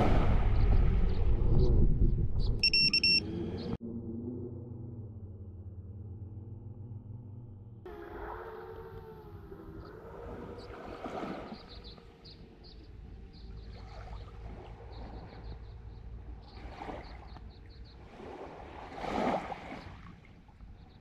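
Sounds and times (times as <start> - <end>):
low wind rumble: 0.0 - 21.0
quadcopter motors humming: 7.9 - 11.0.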